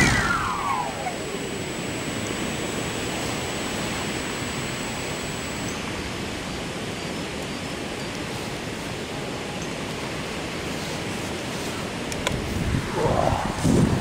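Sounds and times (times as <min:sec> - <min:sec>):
gusty wind on microphone: 0:12.2 - 0:14.0.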